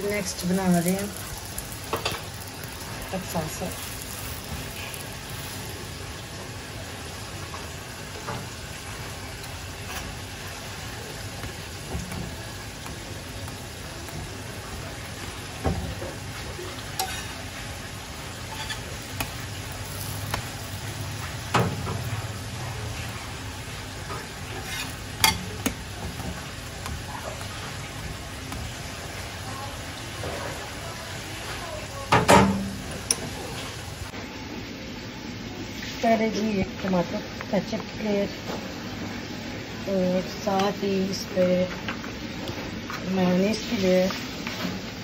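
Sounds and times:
bread sizzling on hot iron pan: 0.0 - 34.1
metal spatula tapping and scraping: 17.0 - 17.4, 18.5 - 19.4, 24.6 - 27.6.

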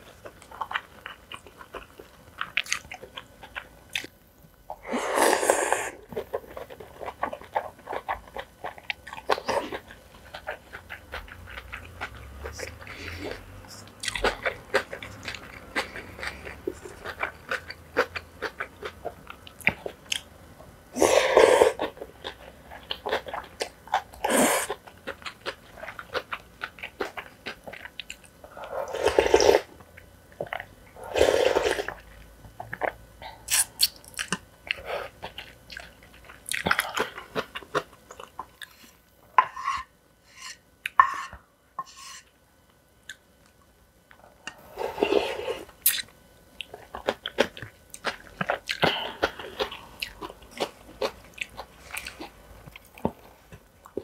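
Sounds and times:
wet chewing: 6.1 - 20.3.

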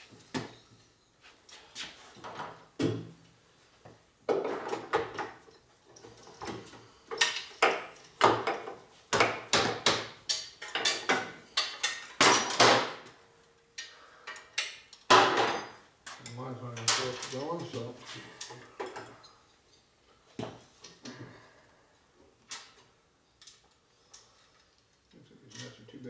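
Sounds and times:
metal tools clinking and rattling: 10.3 - 13.1, 14.3 - 20.0, 23.4 - 26.0.

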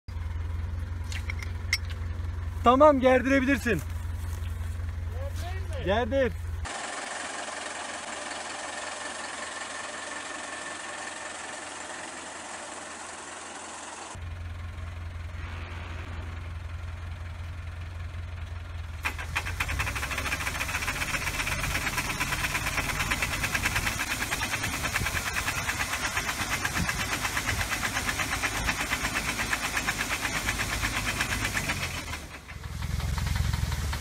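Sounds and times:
tractor engine running: 0.1 - 34.0
rattle of shaking branches: 19.0 - 34.0.

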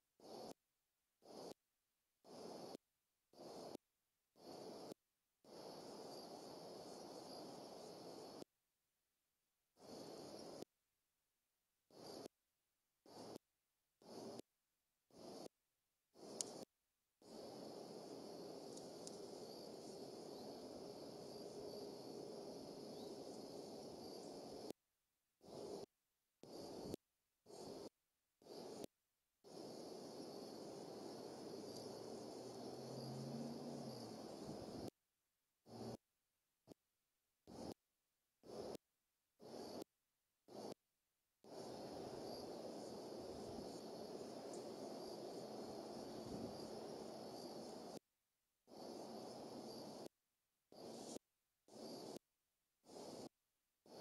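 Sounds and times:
faint rushing hiss: 17.2 - 24.7, 29.5 - 34.9, 41.5 - 48.0, 50.8 - 52.2
high insect-like drone: 30.0 - 34.9.

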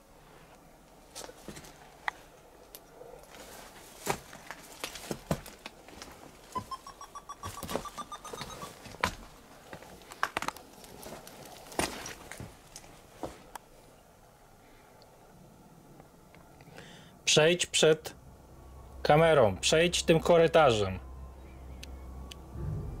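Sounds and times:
footsteps crunching: 3.3 - 6.8
dry twigs cracking: 4.0 - 6.1.

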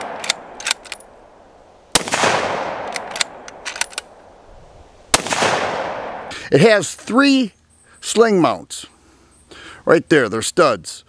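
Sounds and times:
rifle bolt clicks: 0.0 - 1.2, 2.8 - 4.1
rifle shot with echo: 0.0 - 1.2, 1.9 - 4.2, 5.1 - 6.4.

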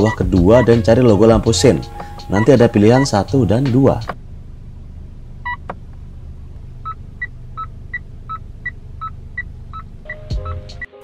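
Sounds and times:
turn signal tick-tock: 0.0 - 4.2
low steady hum: 0.0 - 10.9
dashboard click: 3.7 - 4.2, 5.5 - 6.0.

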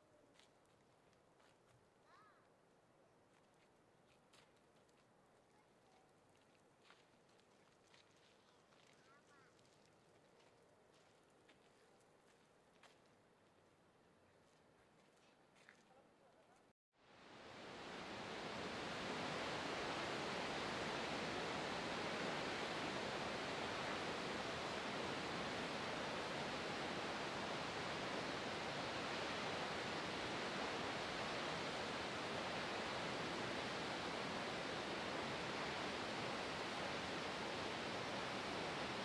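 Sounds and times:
waterfall rushing: 17.2 - 39.0.

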